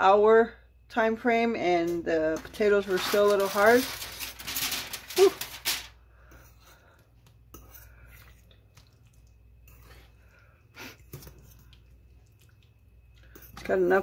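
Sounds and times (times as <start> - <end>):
aluminium foil crinkling: 2.3 - 6.0
spoon stirring sauce: 6.3 - 14.0.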